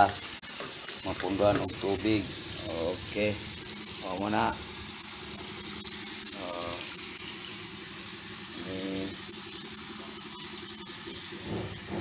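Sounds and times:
tap water running into sink: 0.0s - 7.8s, 8.4s - 12.0s.

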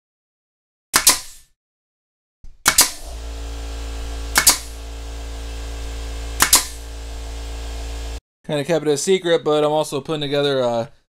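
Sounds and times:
nail gun firing into wood: 1.0s - 1.5s, 2.6s - 3.2s, 4.3s - 4.8s, 6.4s - 6.8s
low machine hum: 3.0s - 8.2s.

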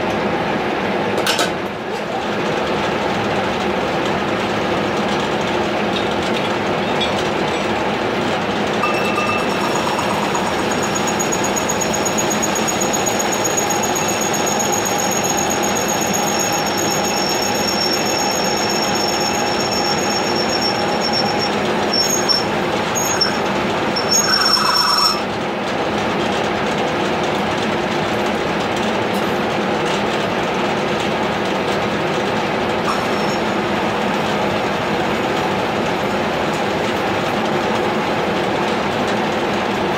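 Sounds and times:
milling machine drone: 5.2s - 25.4s
high-pitched squeal: 8.8s - 25.3s, 32.9s - 33.6s.

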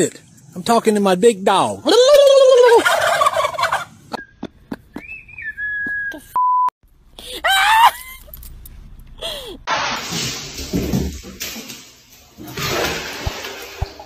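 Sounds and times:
turkey gobbling: 2.5s - 5.0s
censor beep: 6.1s - 6.7s
loud high-pitched cry: 7.3s - 8.2s.

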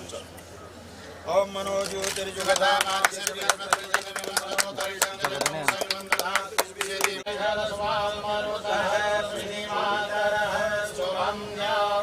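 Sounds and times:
man chanting: 1.3s - 10.4s.

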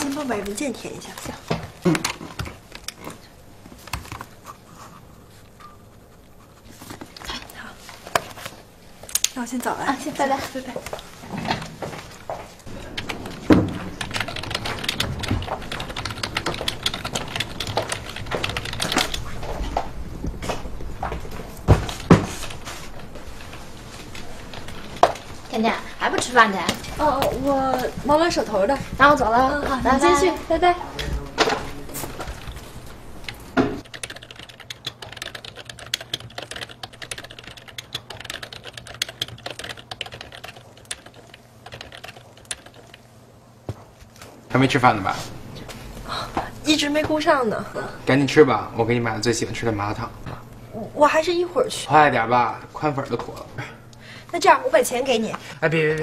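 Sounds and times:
loud knocks: 12.7s - 18.4s
keyboard typing: 12.7s - 19.8s, 32.2s - 43.1s.

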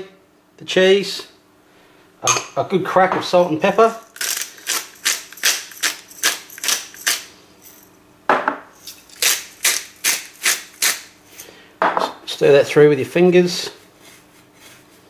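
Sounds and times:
pepper grinder grinding: 3.6s - 7.9s, 8.8s - 11.5s.

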